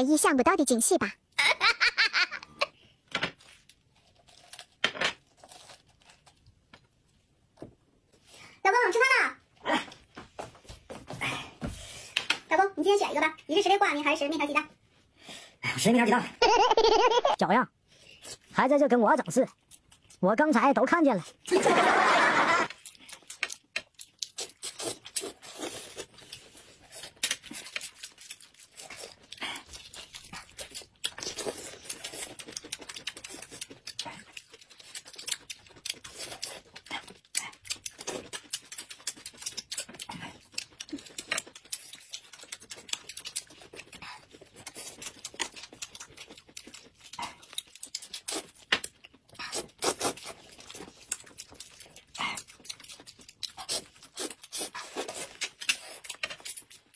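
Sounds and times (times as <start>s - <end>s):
chewing with wet smacks: 22.7s - 56.9s
noodles slurped: 49.4s - 51.2s.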